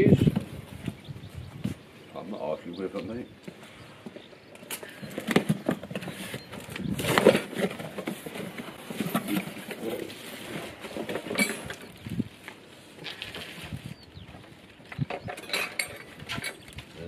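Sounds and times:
cardboard rustling: 0:05.1 - 0:11.7.

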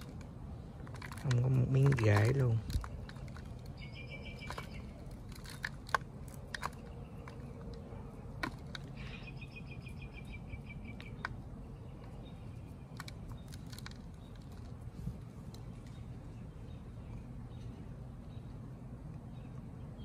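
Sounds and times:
dry soil crumbling by hand: 0:00.0 - 0:10.2, 0:12.0 - 0:16.7.

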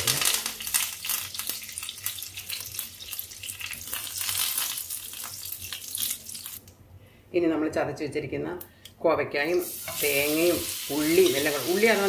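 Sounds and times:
spices sizzling and popping in oil: 0:00.0 - 0:06.7, 0:09.5 - 0:12.0.

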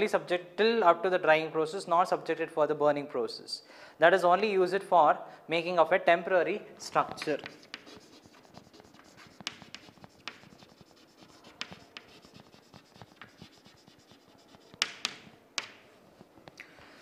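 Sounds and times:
chalk tapping on chalkboard: 0:06.9 - 0:16.3
chalk scratching on chalkboard: 0:07.0 - 0:16.3.

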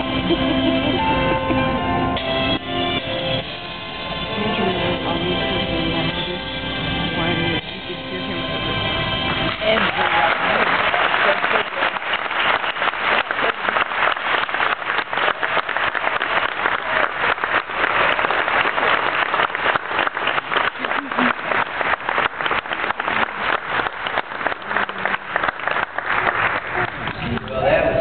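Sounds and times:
audience applauding: 0:09.2 - 0:28.0.

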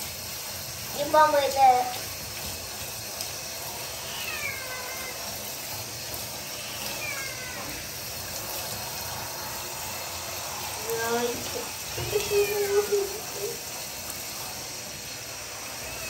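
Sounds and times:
hand shower spraying water: 0:00.0 - 0:16.0
kitten meowing: 0:04.0 - 0:05.2, 0:06.6 - 0:07.8.

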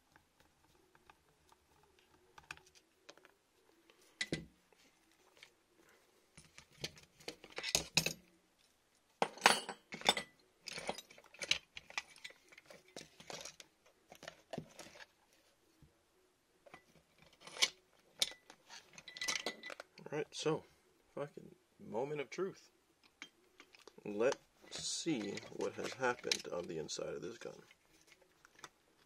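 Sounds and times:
metallic clinks and clattering: 0:09.2 - 0:13.6, 0:16.7 - 0:19.9.

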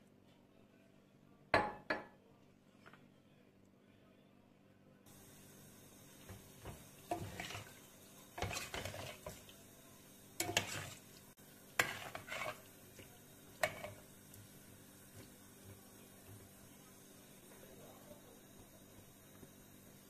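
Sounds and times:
metal spoon stirring in pot: 0:06.3 - 0:09.6, 0:10.4 - 0:15.3.

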